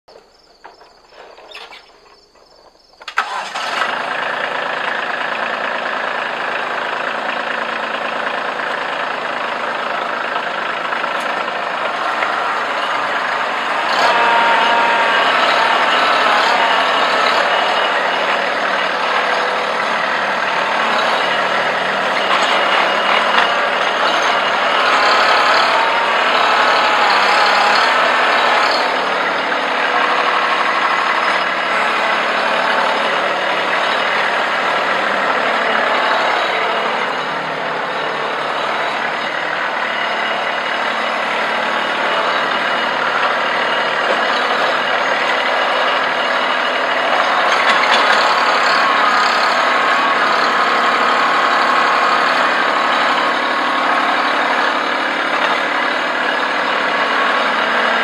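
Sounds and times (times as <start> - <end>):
tractor diesel engine running: 0.1 - 58.0.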